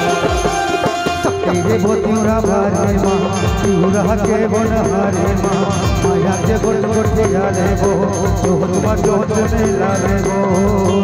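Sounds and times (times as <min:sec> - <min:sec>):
folk band music: 0:00.0 - 0:11.0
hand drum beats: 0:00.0 - 0:11.0
person singing: 0:00.0 - 0:11.0.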